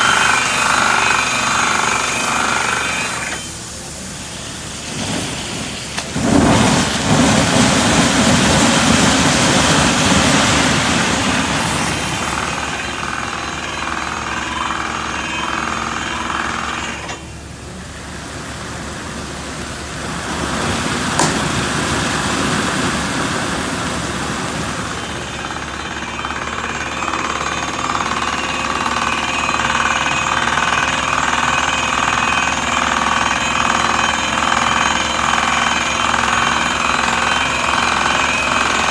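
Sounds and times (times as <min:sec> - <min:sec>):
compressed air and water blasting: 0:00.0 - 0:13.6, 0:18.1 - 0:25.6.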